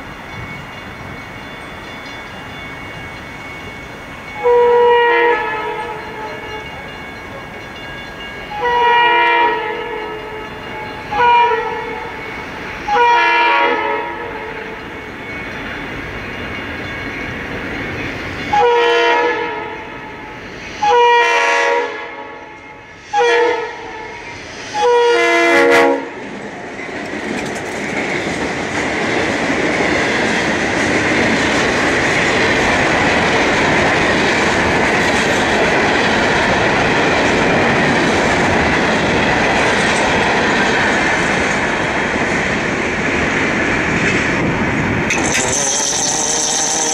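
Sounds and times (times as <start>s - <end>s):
train wheels rumbling on rails: 0.0s - 46.9s
locomotive horn blasts: 4.4s - 6.7s, 8.5s - 10.2s, 11.1s - 12.1s, 12.8s - 14.4s, 18.5s - 19.8s, 20.8s - 22.4s, 23.1s - 24.2s, 24.8s - 26.2s.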